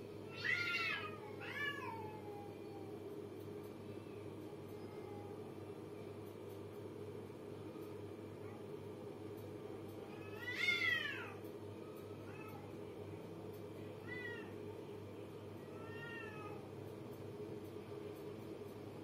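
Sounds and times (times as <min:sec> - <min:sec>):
cats yowling: 0:00.3 - 0:02.6, 0:10.1 - 0:11.4, 0:14.0 - 0:14.6, 0:15.6 - 0:16.6.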